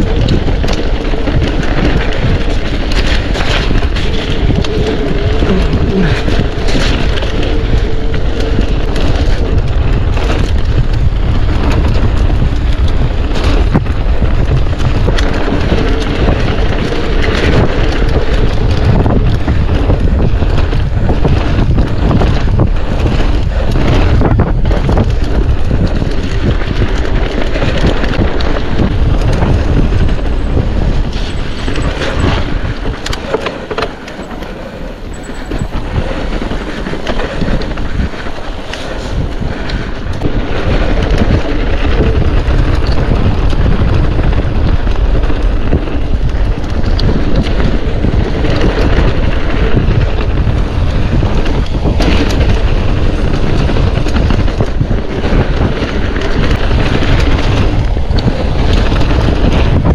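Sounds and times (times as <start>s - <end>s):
bike rattling and knocking: 0.0s - 59.9s
wind buffeting microphone: 0.0s - 59.9s.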